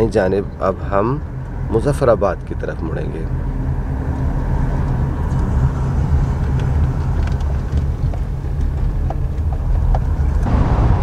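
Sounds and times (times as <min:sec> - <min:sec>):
engine and tyre rumble: 0:00.0 - 0:11.0.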